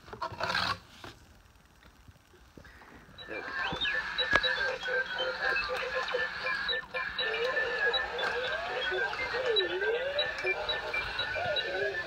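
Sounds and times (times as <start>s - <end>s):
toy robots beeping and whistling: 3.2s - 12.0s.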